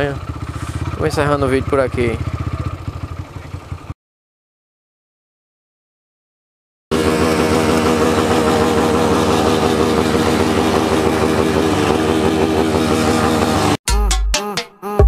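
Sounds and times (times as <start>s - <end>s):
engine running at high revs: 0.0s - 2.2s, 6.9s - 13.8s.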